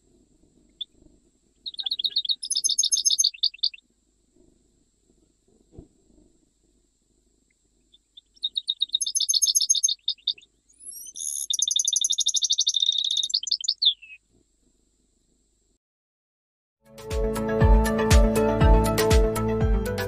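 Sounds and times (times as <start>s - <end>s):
finch singing: 1.6s - 3.8s, 7.9s - 14.2s.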